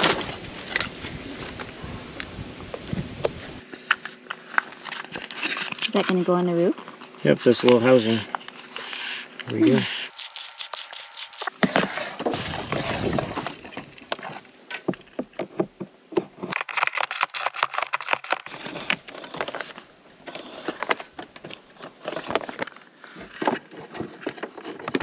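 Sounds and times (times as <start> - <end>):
cables being handled: 10.1 - 11.5, 16.6 - 18.6.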